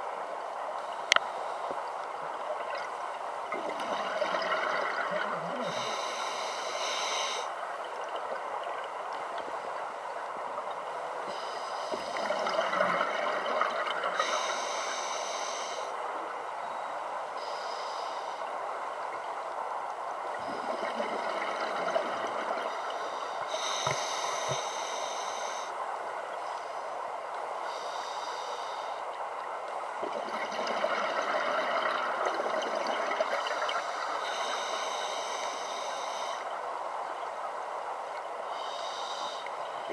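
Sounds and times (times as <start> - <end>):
regulator hissing inhalation: 5.6 - 7.5, 38.6 - 39.5.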